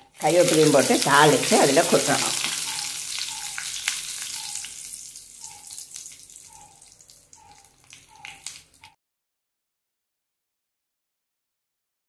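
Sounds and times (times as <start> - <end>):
hot oil sizzling: 0.0 - 8.9
seeds popping and crackling: 0.1 - 9.0.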